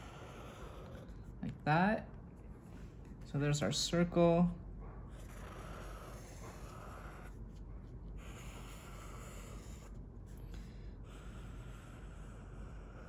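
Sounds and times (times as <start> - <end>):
marker scratching on paper: 5.2 - 10.4.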